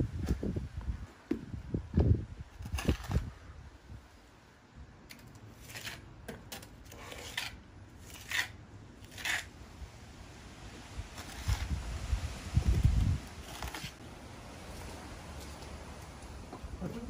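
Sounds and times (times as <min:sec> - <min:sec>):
trowel scraping wet cement: 0:05.1 - 0:09.6, 0:11.1 - 0:11.8, 0:13.2 - 0:14.0.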